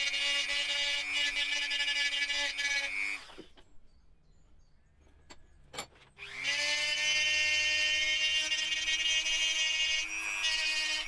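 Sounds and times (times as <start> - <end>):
rotary tool whining: 0.0 - 3.6, 6.1 - 11.0.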